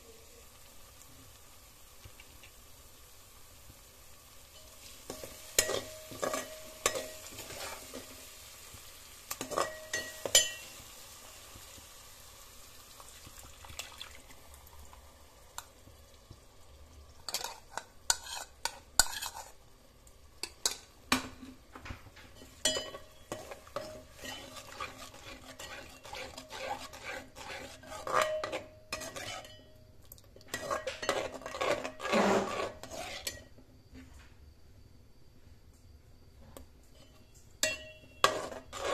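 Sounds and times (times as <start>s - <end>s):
masala sizzling in hot oil: 0.0s - 33.6s, 37.0s - 38.9s
ladle scraping metal pot: 5.1s - 8.0s, 17.3s - 19.6s, 22.4s - 29.6s, 30.4s - 33.5s, 37.7s - 38.9s.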